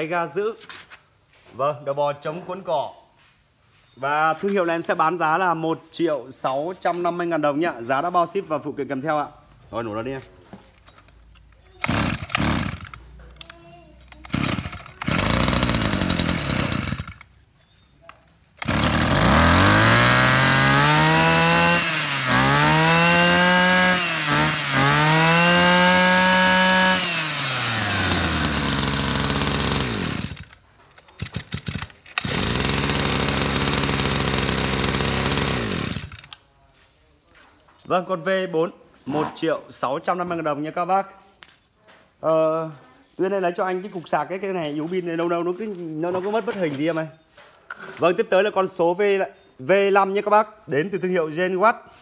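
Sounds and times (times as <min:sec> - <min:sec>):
brush cutter engine revving: 0:11.8 - 0:13.5, 0:14.1 - 0:17.3, 0:18.6 - 0:36.4.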